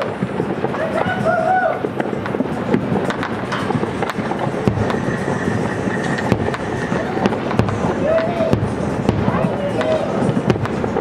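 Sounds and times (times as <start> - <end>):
crowd and city noise: 0.0 - 11.0
fireworks popping and crackling: 0.0 - 11.0
high whistle-like tone: 4.0 - 8.7.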